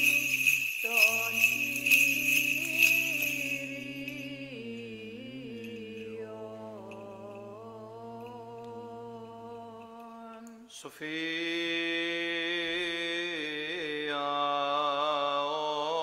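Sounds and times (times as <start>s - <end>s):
censer bells jingling: 0.0s - 8.7s
low held vocal drone: 0.0s - 10.7s
chant singing: 0.0s - 16.0s.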